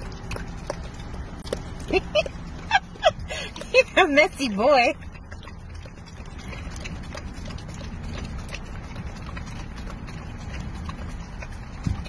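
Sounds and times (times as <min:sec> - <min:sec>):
dog licking and lapping: 0:00.0 - 0:12.0.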